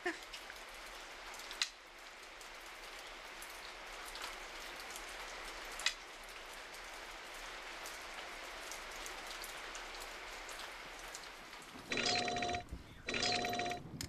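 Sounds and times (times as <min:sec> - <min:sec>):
steady rain falling: 0:00.0 - 0:14.0
telephone bell ringing: 0:11.9 - 0:13.9.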